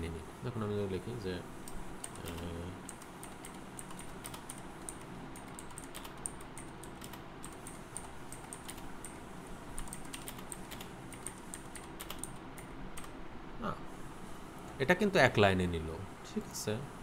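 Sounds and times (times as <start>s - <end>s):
typing on computer keyboard: 1.7s - 13.2s.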